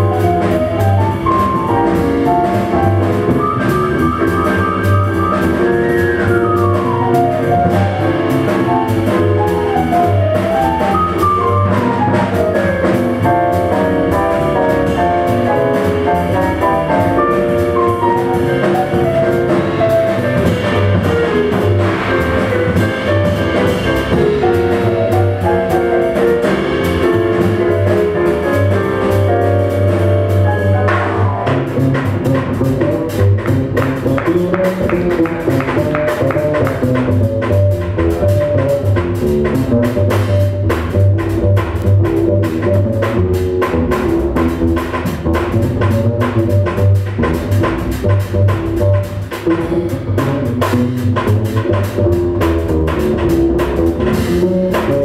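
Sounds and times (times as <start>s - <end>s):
drum kit: 0.0s - 55.0s
jazz piano: 0.0s - 55.0s
upright double bass: 0.0s - 55.0s.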